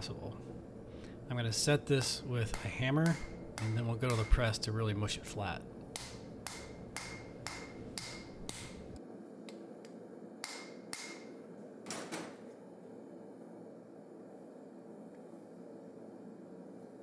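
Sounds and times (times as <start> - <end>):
steady low hum: 0.0 - 17.0
hammer blows on hot steel: 2.4 - 4.6.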